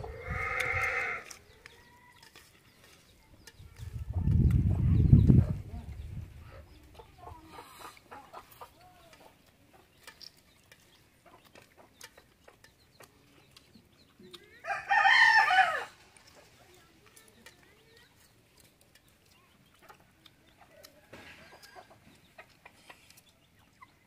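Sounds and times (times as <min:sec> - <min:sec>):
chickens clucking: 0:00.0 - 0:24.0
rooster crowing: 0:14.6 - 0:16.0.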